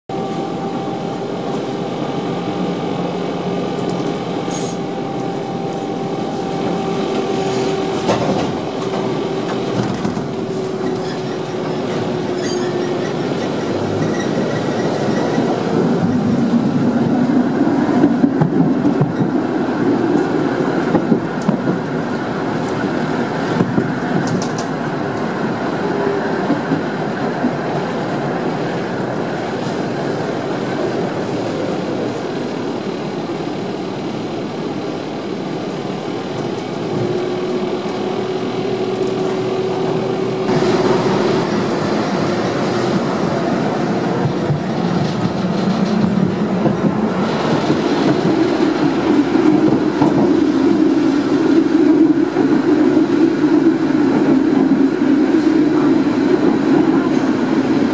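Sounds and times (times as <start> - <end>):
tram whine: 0.1 - 57.9
wheels rumbling on rails: 0.1 - 57.9.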